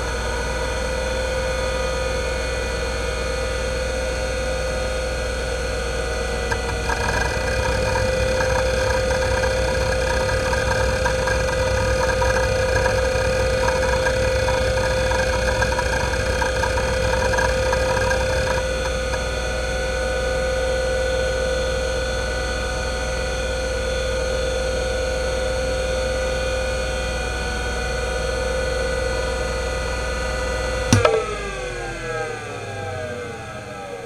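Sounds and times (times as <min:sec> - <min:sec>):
hard drive spindle whine: 0:06.0 - 0:19.6, 0:30.9 - 0:34.0
hard drive seek chatter: 0:06.4 - 0:19.3, 0:30.9 - 0:34.0
sharp click: 0:30.9 - 0:31.6.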